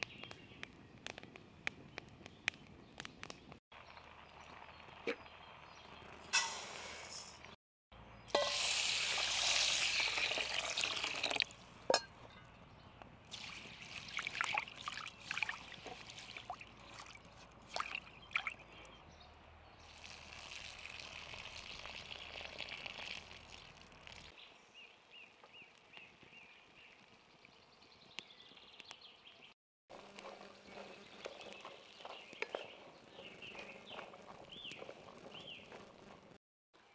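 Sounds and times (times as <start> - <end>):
water pouring into bowl: 8.6 - 11.5, 13.3 - 18.6, 19.9 - 24.3
hands swishing grain in water: 13.3 - 18.5.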